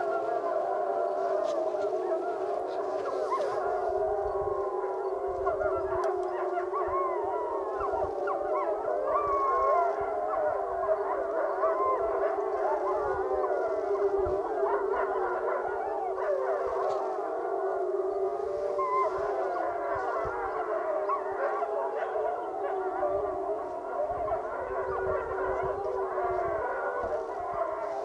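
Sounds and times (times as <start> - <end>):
wolves howling in chorus: 0.0 - 28.0.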